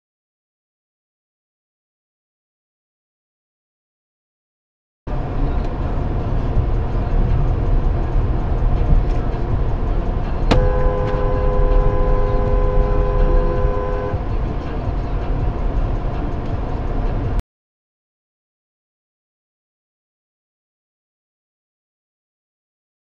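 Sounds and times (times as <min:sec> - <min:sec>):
car driving rumble: 0:05.1 - 0:17.4
car horn: 0:10.3 - 0:15.1.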